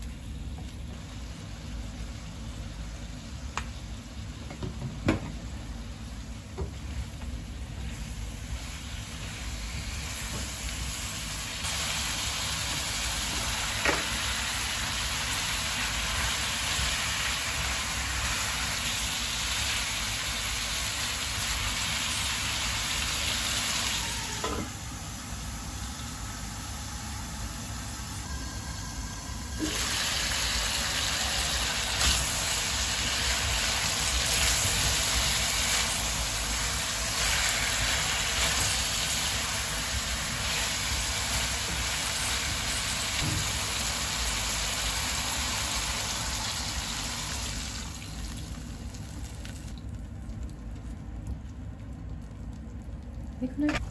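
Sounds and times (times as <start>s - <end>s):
chicken and onions sizzling in pan: 5.4s - 48.0s.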